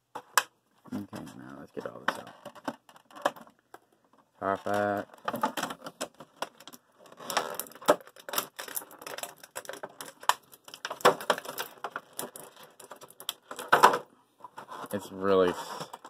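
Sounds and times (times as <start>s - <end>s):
plastic packaging crinkling: 4.4s - 14.0s.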